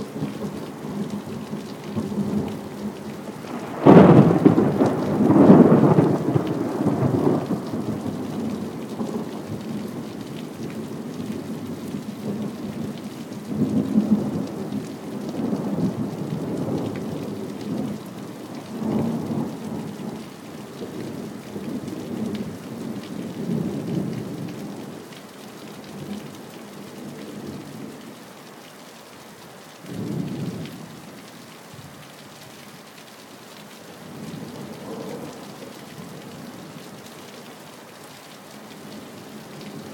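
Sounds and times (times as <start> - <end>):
steady rain: 0.0 - 39.9
thunder rumbling: 0.4 - 8.2.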